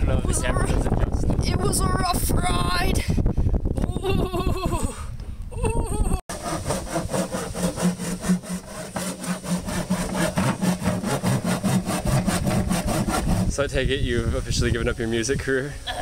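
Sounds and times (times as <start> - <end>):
hand saw cutting guitar body: 6.3 - 13.6.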